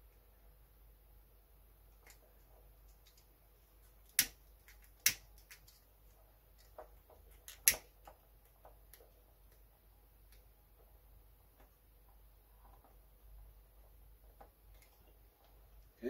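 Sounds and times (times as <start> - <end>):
sharp clicks of wire work: 6.6 - 9.6.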